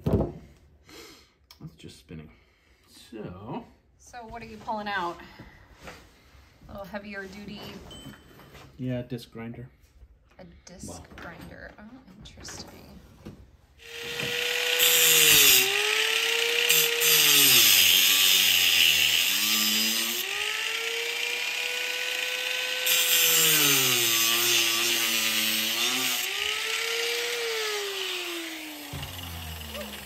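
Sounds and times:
angle grinder grinding plastic: 0:13.8 - 0:30.0.

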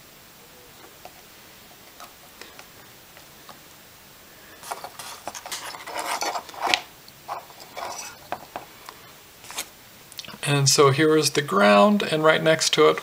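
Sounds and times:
circuit board scraping on frame: 0:04.6 - 0:08.5.

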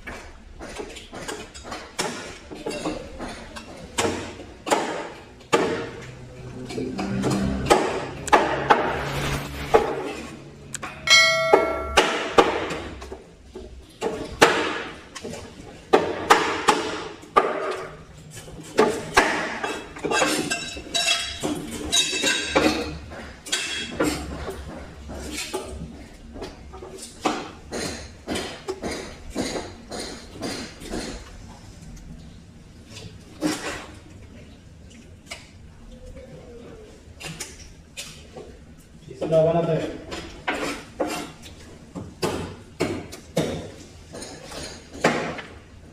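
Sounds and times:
brief metallic ring: 0:11.1 - 0:12.4.

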